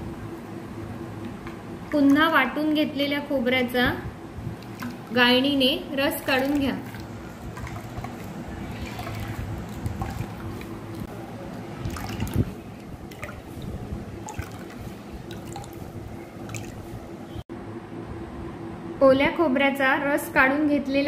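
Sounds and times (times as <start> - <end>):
liquid trickling and dripping into bowl: 4.5 - 5.2, 6.2 - 16.9
wet squishes: 4.6 - 5.2, 6.1 - 17.0.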